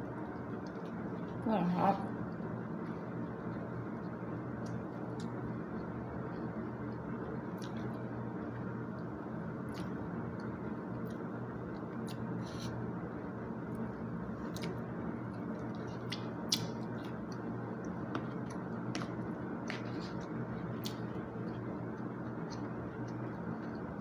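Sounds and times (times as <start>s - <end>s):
low room hum: 0.0s - 24.0s
chewing: 14.4s - 14.8s, 15.6s - 23.9s.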